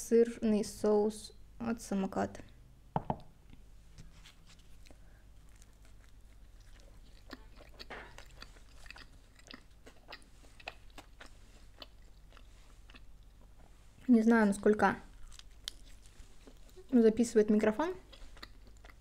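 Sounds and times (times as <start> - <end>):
biting and chewing crunchy food: 4.1 - 13.7, 15.1 - 17.0, 18.0 - 19.0.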